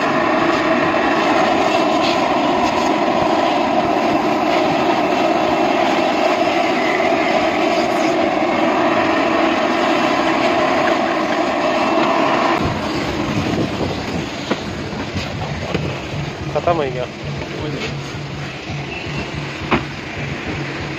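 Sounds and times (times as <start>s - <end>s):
car-wash vacuum running: 0.0s - 20.9s.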